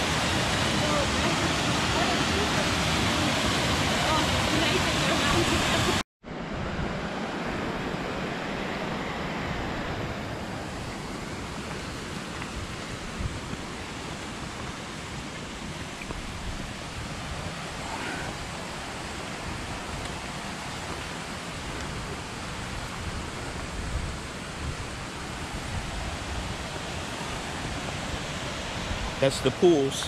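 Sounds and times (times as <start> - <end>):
waterfall rushing: 0.0 - 6.0, 7.3 - 30.0
wind on microphone: 9.5 - 29.2.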